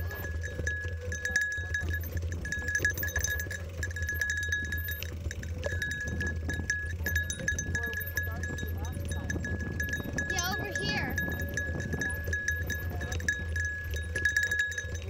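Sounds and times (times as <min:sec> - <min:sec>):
bike clinks and rattles: 0:00.0 - 0:15.0
high metallic ringing: 0:00.0 - 0:15.0
tyres and wind rumble: 0:00.0 - 0:15.0.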